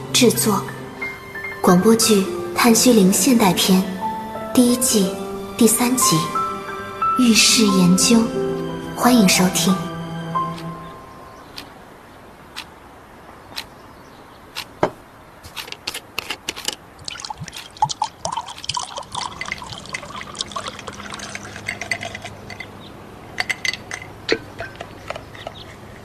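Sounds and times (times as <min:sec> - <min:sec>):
water splashing and dripping: 0:15.6 - 0:24.7.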